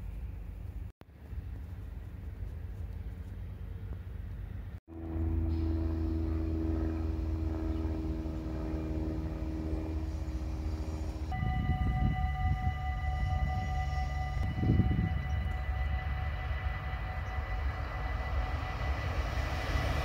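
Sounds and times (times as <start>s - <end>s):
level-crossing warning bell ringing: 4.9s - 20.0s
steady hum: 4.9s - 20.0s
wind rumble on microphone: 6.2s - 18.3s.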